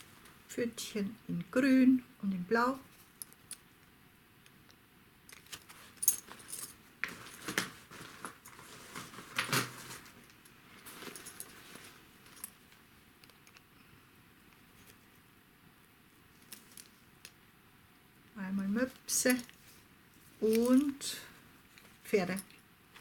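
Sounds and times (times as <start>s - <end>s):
light clicks of bags: 5.3s - 13.7s
fabric bags rustling: 5.4s - 12.7s.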